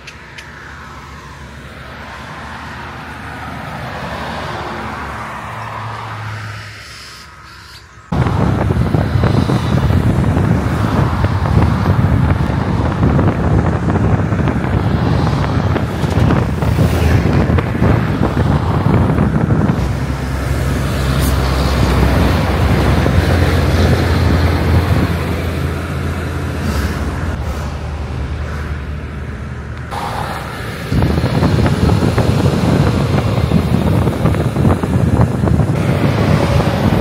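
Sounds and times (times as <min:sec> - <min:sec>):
vehicle road noise: 0:00.0 - 0:37.0
wind buffeting microphone: 0:08.1 - 0:37.0.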